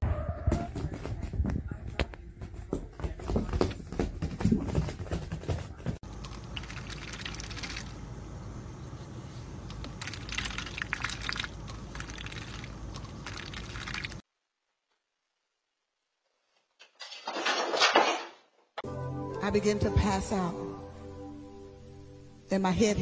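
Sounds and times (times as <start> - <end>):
low background hum: 0.0 - 16.1
duck splashing in water cup: 6.2 - 8.0, 9.8 - 14.2.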